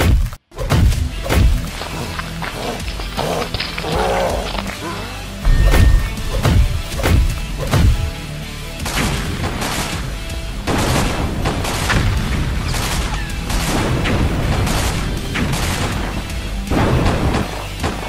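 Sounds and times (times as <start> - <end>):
background music: 0.0 - 18.0
cartoon explosions and gunfire: 5.5 - 18.0.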